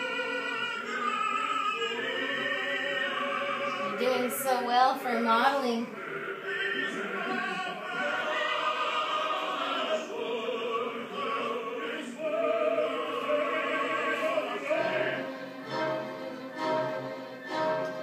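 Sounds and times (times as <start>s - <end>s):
opera singing: 0.0s - 18.0s
orchestral accompaniment: 12.2s - 18.0s.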